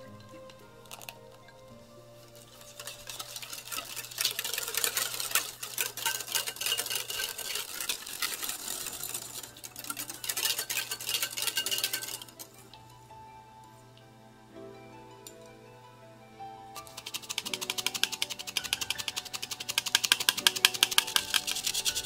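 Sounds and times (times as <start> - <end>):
whisk scraping glass bowl: 2.2 - 12.6, 16.8 - 22.0.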